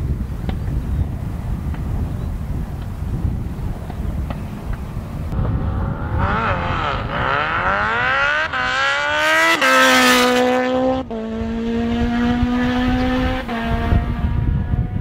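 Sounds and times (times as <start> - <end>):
drag racing engine accelerating: 5.3 - 15.0.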